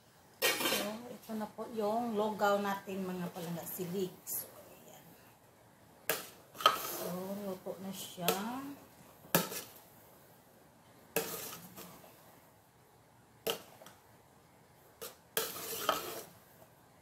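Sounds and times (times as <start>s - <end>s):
spoon scraping metal pot: 0.4s - 1.1s, 6.6s - 7.6s, 11.2s - 12.0s, 15.0s - 16.4s.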